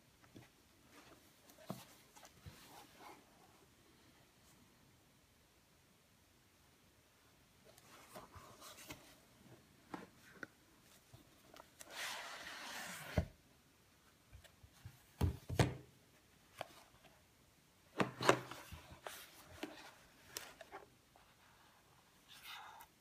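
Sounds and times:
cardboard scrape: 0:11.8 - 0:13.3
cardboard rubbing and sliding: 0:11.8 - 0:13.4.

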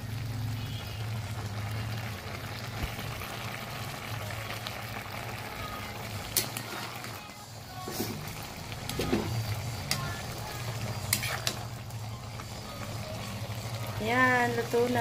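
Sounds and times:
vegetables simmering in a pot: 0:00.0 - 0:15.0
metal ladle clicking against pot: 0:06.4 - 0:06.6.

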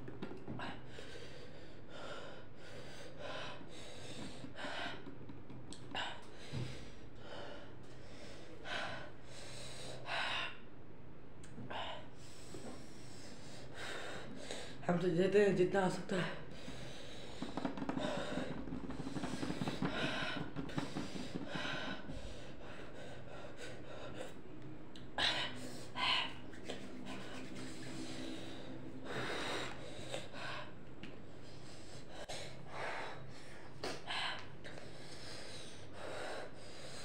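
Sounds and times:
boy panting and gasping: 0:16.2 - 0:24.4, 0:25.0 - 0:37.0.

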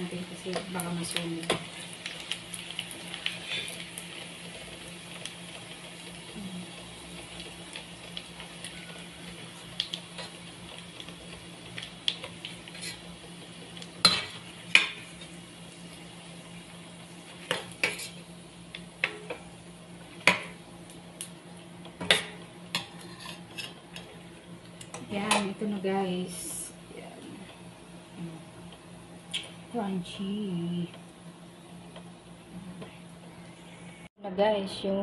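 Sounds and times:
oil sizzling in a pan: 0:00.0 - 0:27.0
metal spoon scraping a pan: 0:22.8 - 0:23.8.

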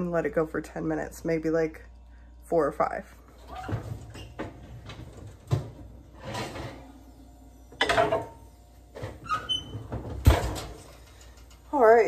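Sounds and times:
oven rack knock and scrape: 0:03.5 - 0:06.9, 0:07.8 - 0:08.4, 0:09.0 - 0:11.0.

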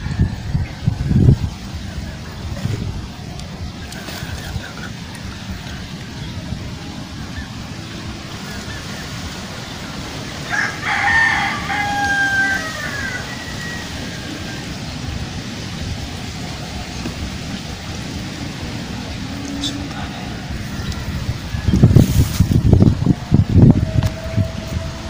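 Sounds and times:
rooster crowing: 0:10.4 - 0:14.7.

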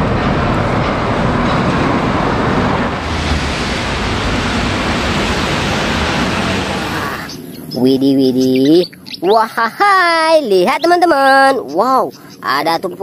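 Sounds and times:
bus engine hum: 0:00.0 - 0:08.8
road and traffic noise: 0:00.0 - 0:13.0.

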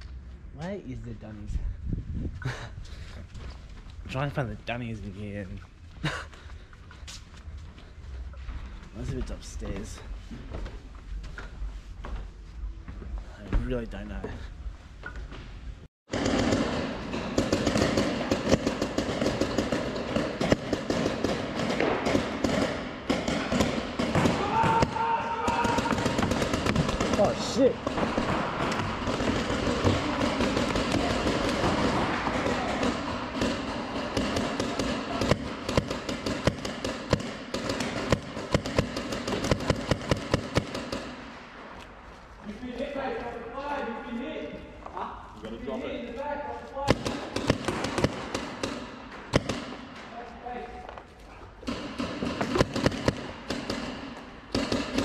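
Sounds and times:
paintball markers firing: 0:16.1 - 0:41.3, 0:46.8 - 0:50.0, 0:51.6 - 0:55.0.

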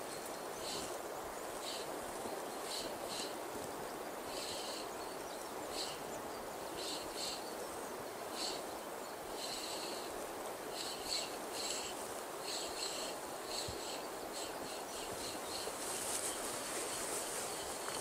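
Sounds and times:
river water running over rapids: 0:00.0 - 0:18.0
small bird chirping: 0:10.7 - 0:18.0.

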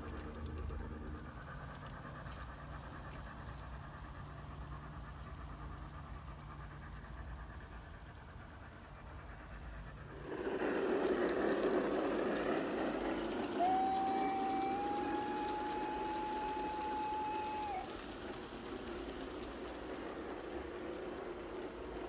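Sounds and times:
model train wheels rumbling: 0:00.0 - 0:22.0
train whistle: 0:13.4 - 0:18.0.

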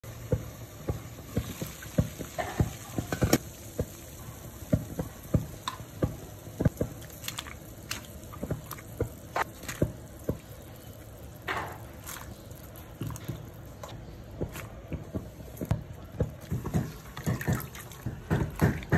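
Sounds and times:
water boiling and bubbling: 0:00.0 - 0:18.9.

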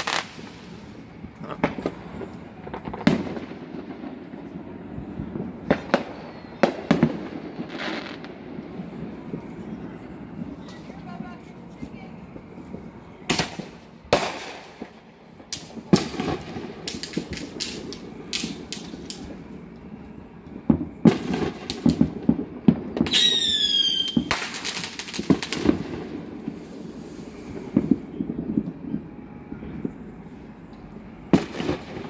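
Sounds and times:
fireworks bangs: 0:00.0 - 0:30.1, 0:31.2 - 0:32.0
fireworks crackling: 0:00.0 - 0:32.0
falling firework whistle: 0:04.4 - 0:08.3, 0:23.0 - 0:30.1.

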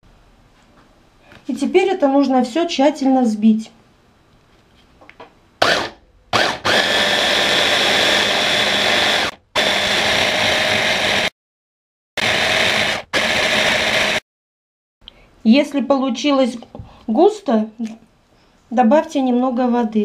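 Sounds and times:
electric blender whirring: 0:05.6 - 0:11.3, 0:12.2 - 0:14.2.

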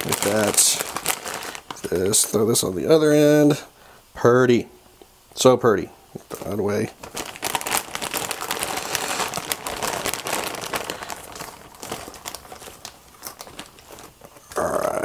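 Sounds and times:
plastic bag crinkling: 0:00.0 - 0:02.8, 0:06.2 - 0:14.6.

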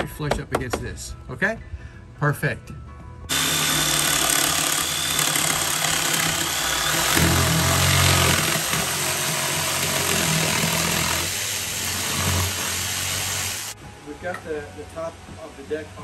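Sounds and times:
jigsaw sawing through plywood: 0:03.3 - 0:13.8.

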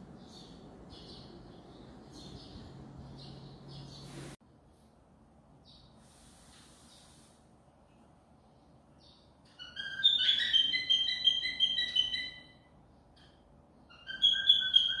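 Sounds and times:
bird chirping: 0:00.0 - 0:04.2, 0:05.6 - 0:06.0, 0:08.4 - 0:15.0.

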